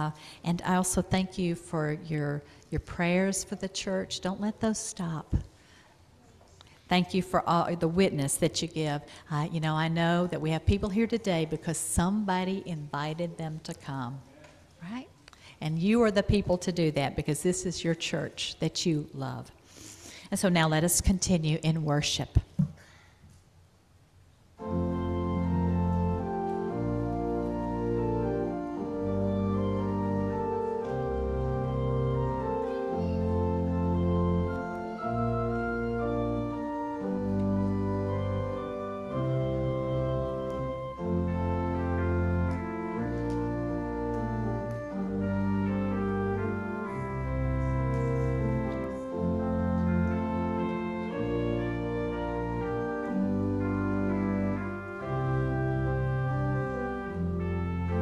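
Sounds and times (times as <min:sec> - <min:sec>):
church organ chords: 0:24.6 - 0:58.0.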